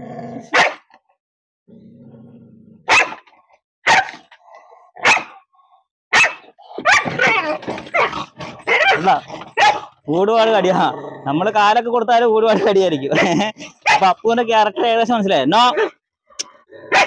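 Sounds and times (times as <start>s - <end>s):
dog growling: 0.0s - 0.5s, 1.7s - 2.9s, 4.2s - 5.0s, 6.6s - 11.6s, 12.5s - 14.2s
dog barking sharply: 0.5s - 0.9s, 2.9s - 4.3s, 5.0s - 5.4s, 6.1s - 9.9s, 13.2s - 14.1s, 15.7s - 16.0s.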